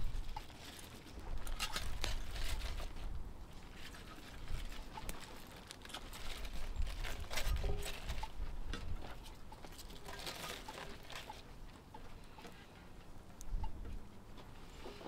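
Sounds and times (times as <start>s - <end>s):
leafy greens rustling and crinkling: 0.0s - 13.0s.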